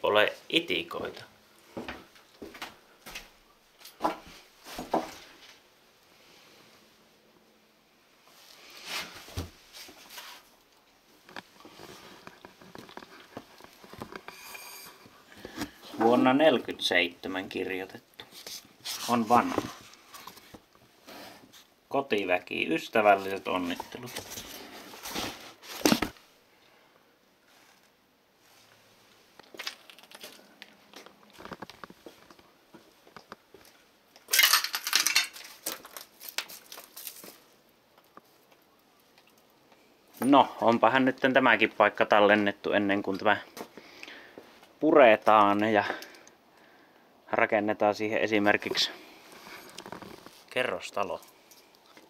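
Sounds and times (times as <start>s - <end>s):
rustling cardboard and paper: 18.3s - 20.6s, 23.6s - 26.2s, 35.3s - 37.5s.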